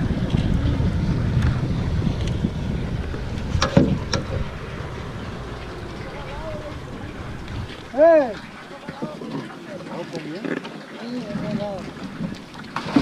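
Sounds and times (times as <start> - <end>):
wind buffeting microphone: 0.0 - 9.8.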